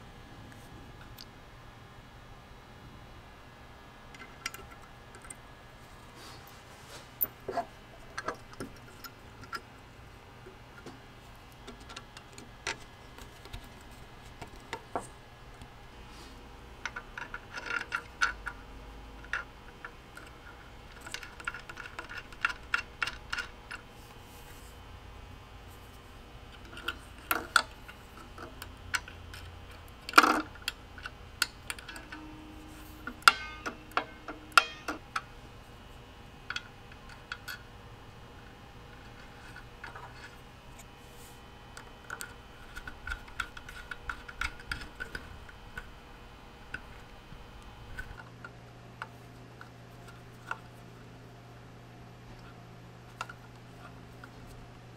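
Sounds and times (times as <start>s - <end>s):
loud metal clack: 32.0s - 35.0s.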